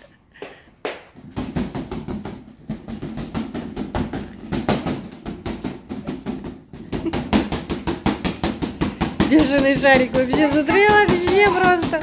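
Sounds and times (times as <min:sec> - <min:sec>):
hand slapping rubber balloon: 0:00.9 - 0:12.0.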